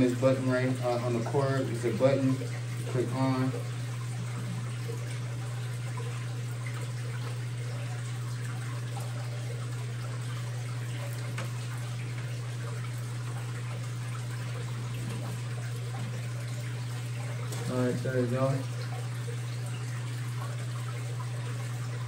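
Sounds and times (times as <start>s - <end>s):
low motor hum: 0.0s - 22.0s
water rushing and trickling: 0.0s - 22.0s.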